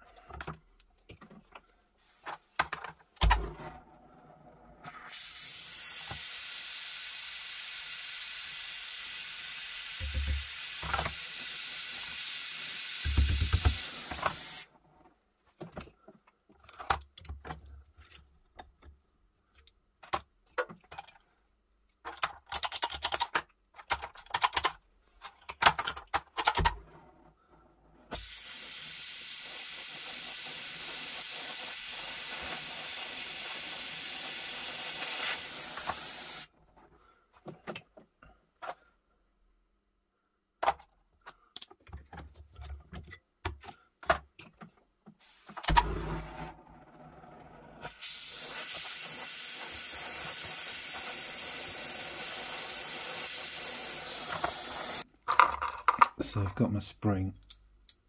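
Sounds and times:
torch flame hissing: 0:28.2 - 0:36.5, 0:47.9 - 0:55.0.

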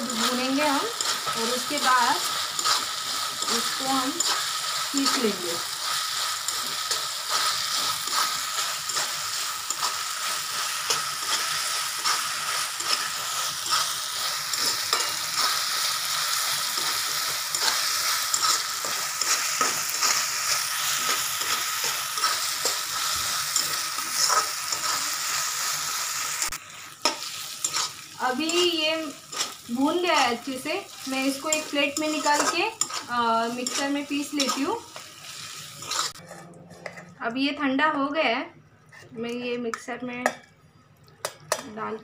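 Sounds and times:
food sizzling in oil: 0:00.0 - 0:36.3
wooden spatula scraping pan: 0:35.8 - 0:37.1.

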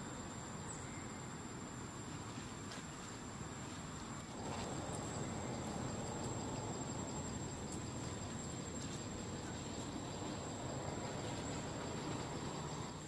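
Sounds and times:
crickets chirping: 0:00.0 - 0:13.0
low background rumble: 0:04.3 - 0:13.0.

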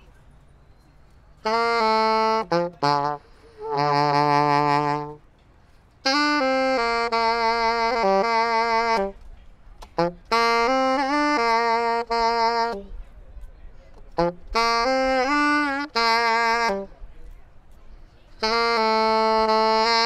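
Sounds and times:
alto saxophone playing: 0:01.4 - 0:05.3, 0:06.0 - 0:13.0, 0:14.1 - 0:17.0, 0:18.4 - 0:20.0.

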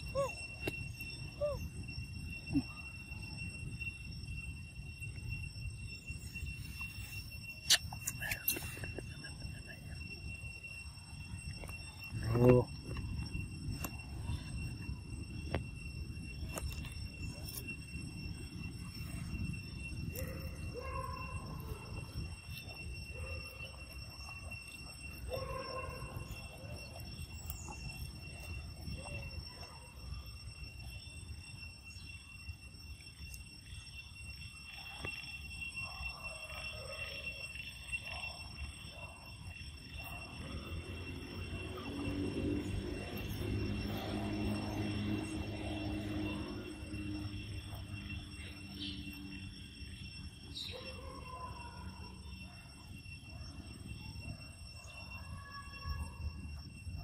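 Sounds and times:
monkey calling softly: 0:00.0 - 0:01.8
high insect trill: 0:00.0 - 0:57.0
high-pitched whine: 0:00.0 - 0:57.0.

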